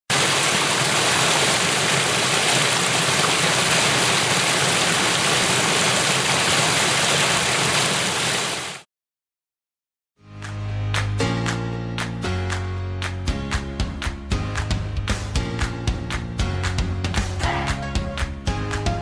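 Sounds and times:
waterfall rushing: 0:00.1 - 0:08.8.

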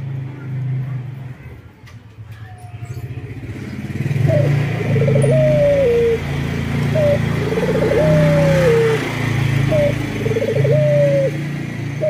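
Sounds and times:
dove cooing: 0:04.1 - 0:12.0.

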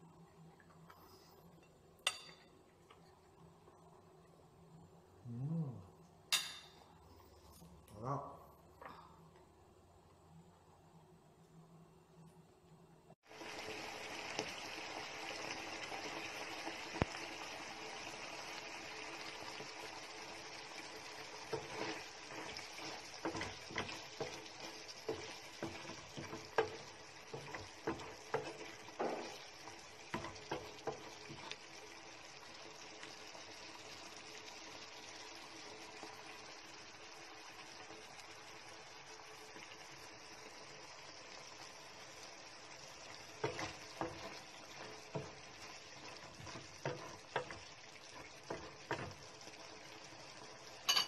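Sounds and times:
food sizzling in frying pan: 0:13.2 - 0:51.0.

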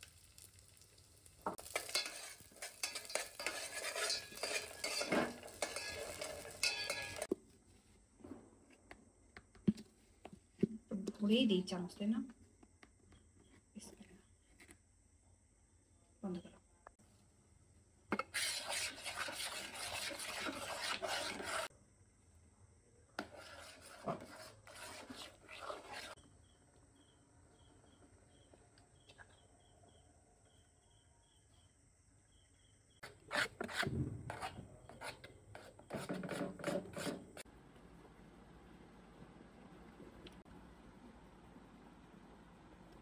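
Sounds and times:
metal spoon scraping a pot: 0:01.6 - 0:07.3, 0:18.1 - 0:21.7, 0:23.2 - 0:26.2, 0:33.0 - 0:37.4.

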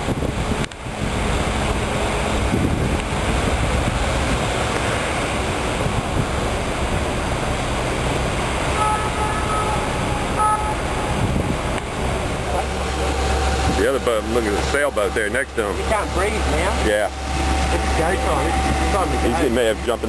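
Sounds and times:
wind on microphone: 0:00.0 - 0:14.2
boat engine rumble: 0:00.0 - 0:20.0
short high steady tone: 0:08.8 - 0:11.3.

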